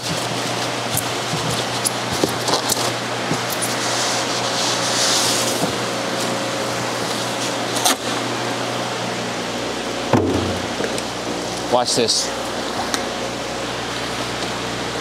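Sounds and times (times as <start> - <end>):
equipment hum and hiss: 0.0 - 15.0
polystyrene boxes knocking: 10.2 - 11.0.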